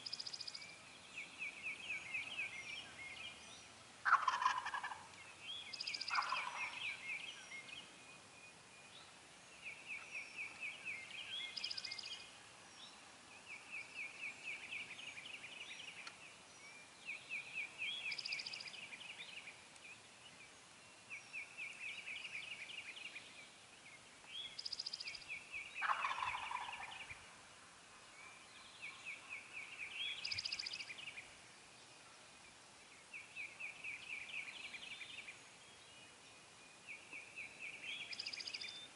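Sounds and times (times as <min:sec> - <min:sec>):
turkeys gobbling: 0:04.0 - 0:05.1, 0:06.1 - 0:06.8, 0:25.8 - 0:26.9.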